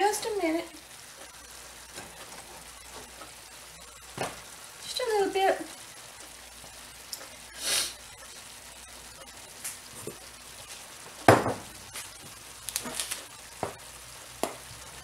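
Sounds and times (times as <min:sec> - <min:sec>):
meat and vegetables sizzling: 0:00.0 - 0:15.0
knock: 0:11.3 - 0:11.7.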